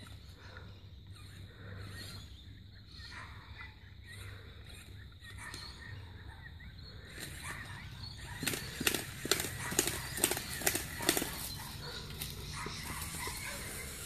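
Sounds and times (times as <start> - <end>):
faint bird chirps: 0.0 - 14.0.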